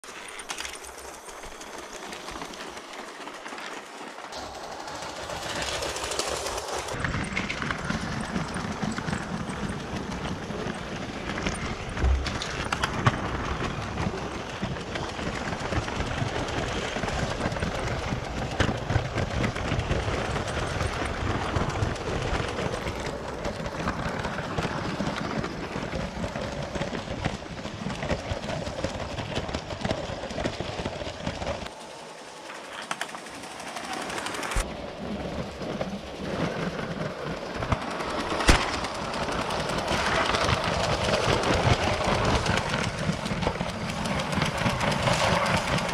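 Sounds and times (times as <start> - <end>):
toy train wheels rattling on track: 0.0 - 45.9.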